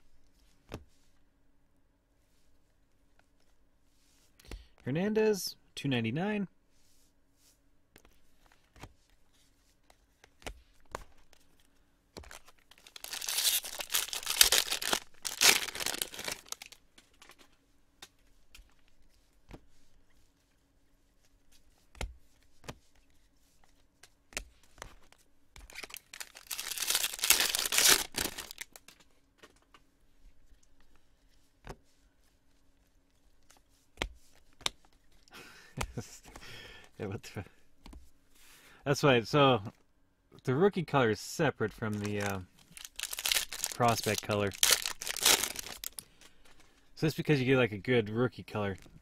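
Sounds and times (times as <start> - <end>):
wrappers ripped and crinkled: 12.3 - 16.8, 25.7 - 28.9, 41.8 - 46.0.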